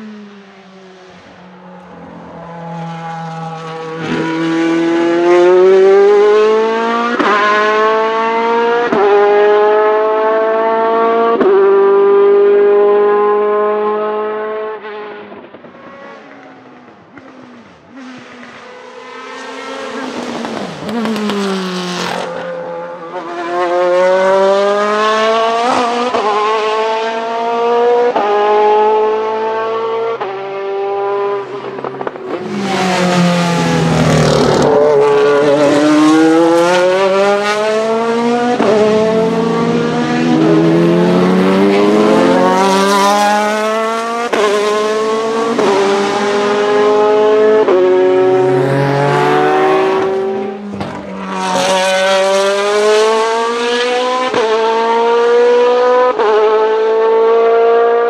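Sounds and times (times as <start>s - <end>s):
race car engine accelerating: 1.1s - 58.0s
race car passing by: 15.8s - 58.0s.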